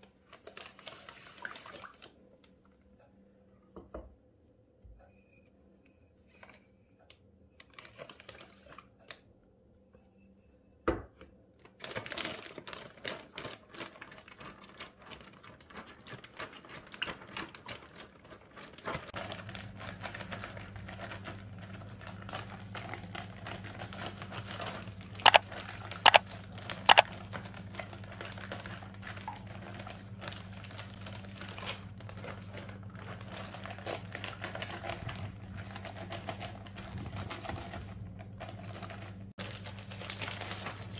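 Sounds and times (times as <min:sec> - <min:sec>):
plastic bag crinkling: 0:39.4 - 0:40.9.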